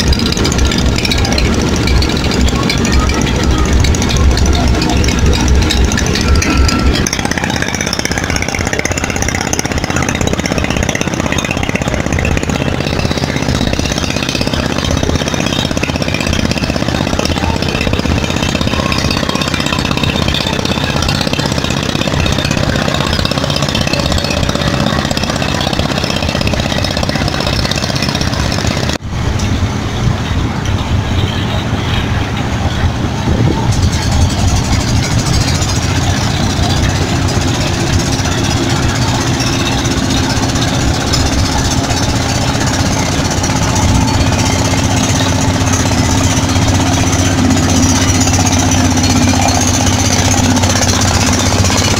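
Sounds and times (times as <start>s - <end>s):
boat engines: 0.0s - 51.9s
hubbub of voices: 0.0s - 51.9s.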